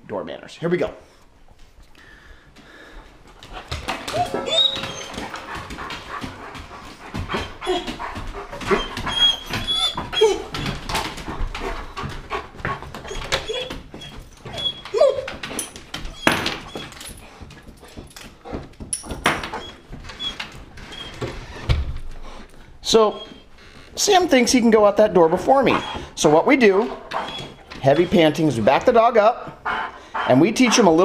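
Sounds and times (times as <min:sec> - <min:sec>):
dog whining: 0:03.7 - 0:11.2, 0:13.0 - 0:17.2, 0:19.4 - 0:21.6, 0:22.9 - 0:23.8, 0:25.1 - 0:28.8.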